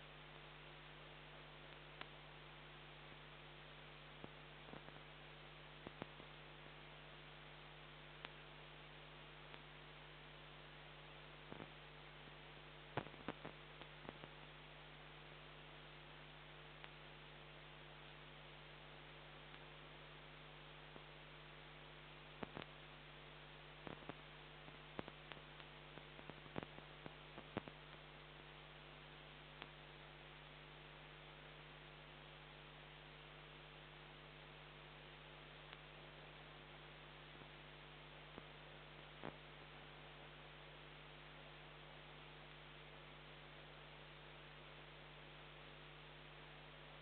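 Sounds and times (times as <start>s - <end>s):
electrical hum and hiss: 0.0s - 47.0s.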